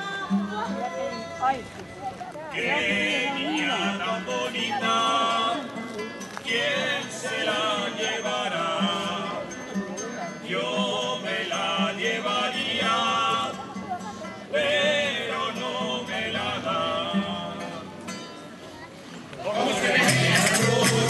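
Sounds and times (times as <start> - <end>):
guitars: 0.0 - 21.0
women's choir singing: 2.5 - 5.8, 6.4 - 9.6, 10.4 - 17.9, 19.4 - 21.0.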